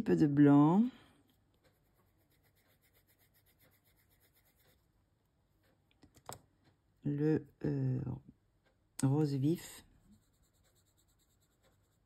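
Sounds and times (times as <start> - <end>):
pencil shading on paper: 1.6 - 4.9, 10.0 - 12.0.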